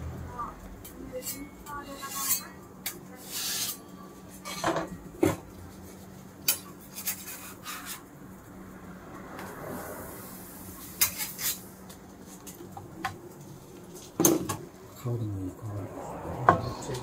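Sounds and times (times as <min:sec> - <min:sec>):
spatula scraping griddle: 0:01.1 - 0:04.9, 0:05.7 - 0:08.1, 0:10.3 - 0:12.6.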